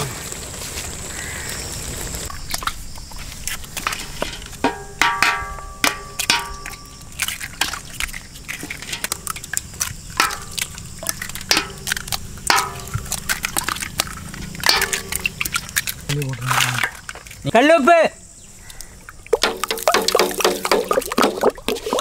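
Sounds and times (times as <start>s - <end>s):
eggshells cracking against metal pot: 2.3s - 17.5s, 18.7s - 22.0s
egg contents splashing into pot: 5.0s - 17.4s, 19.3s - 21.8s.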